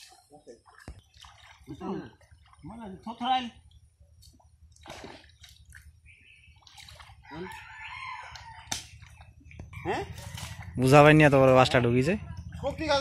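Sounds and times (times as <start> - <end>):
water splashing and dripping: 0.0 - 13.0
rooster crowing: 7.2 - 8.7, 9.7 - 11.0.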